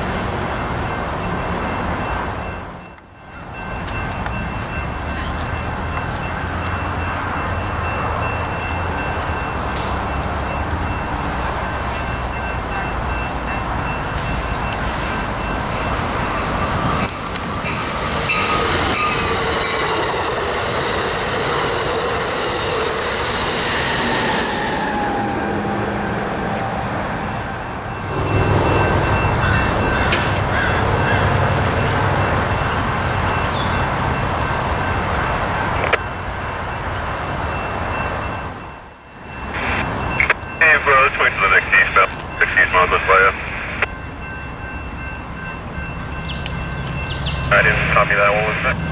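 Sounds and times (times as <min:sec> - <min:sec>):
train wheels on rails: 0:00.0 - 0:40.6, 0:41.2 - 0:48.9
level crossing bell ringing: 0:27.9 - 0:35.1.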